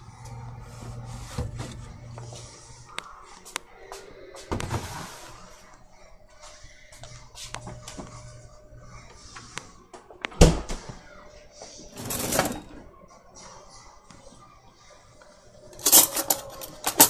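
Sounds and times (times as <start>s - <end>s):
cutlery drawer sliding open: 12.0s - 12.8s.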